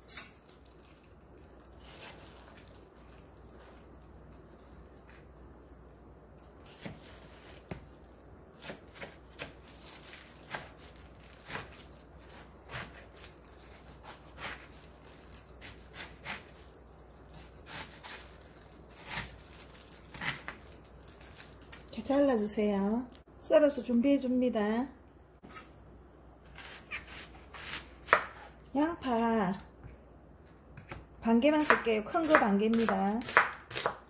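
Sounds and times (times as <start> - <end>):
knife chopping on plastic board: 26.6 - 28.5, 31.6 - 34.0.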